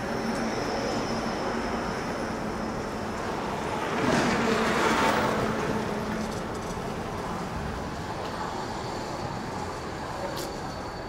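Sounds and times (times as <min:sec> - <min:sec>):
traffic noise: 0:00.0 - 0:11.0.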